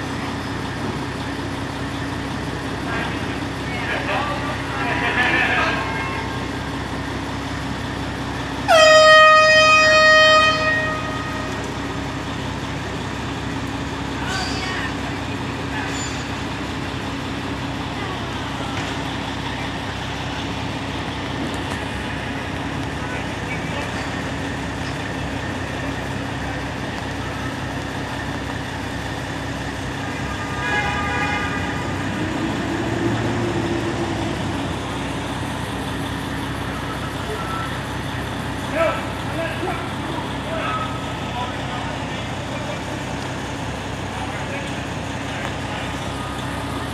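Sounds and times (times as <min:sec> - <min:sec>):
city street traffic: 0:00.0 - 0:46.9
engine running: 0:00.0 - 0:46.9
vehicle horn blast: 0:08.7 - 0:11.6, 0:30.1 - 0:32.2.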